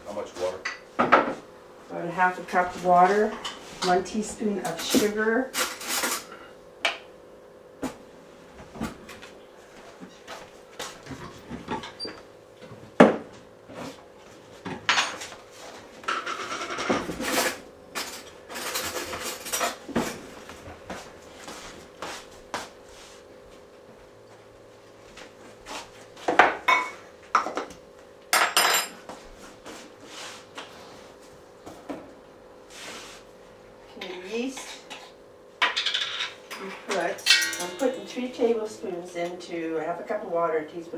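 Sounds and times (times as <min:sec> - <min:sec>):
dishes and utensils clinking: 0:28.4 - 0:29.0, 0:34.0 - 0:38.2.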